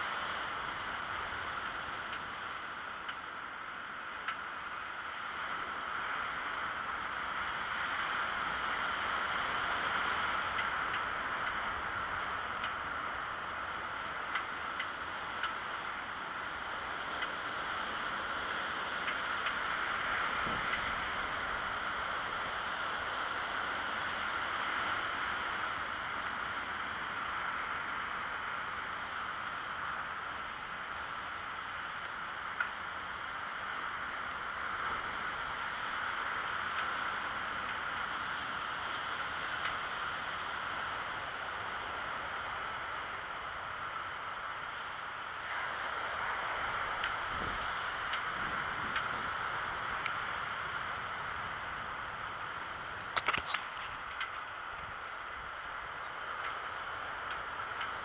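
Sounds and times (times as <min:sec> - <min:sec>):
wind on microphone: 0:17.4 - 0:28.2, 0:45.4 - 0:55.6.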